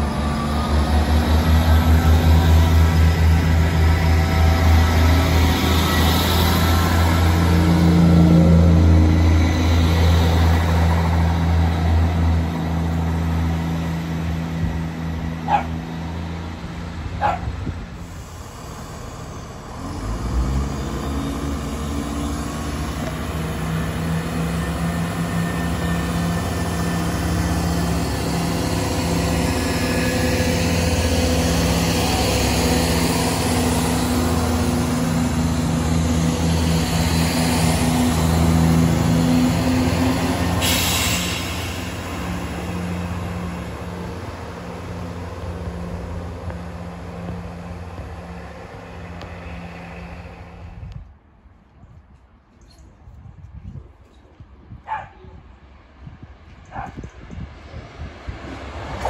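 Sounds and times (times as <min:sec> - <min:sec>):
diesel train engine pulling away: 0:00.0 - 0:51.2
diesel train engines passing: 0:00.0 - 0:52.6, 0:54.0 - 0:59.0
dog barks: 0:15.4 - 0:15.8, 0:17.2 - 0:17.5, 0:54.8 - 0:55.3, 0:56.7 - 0:57.0.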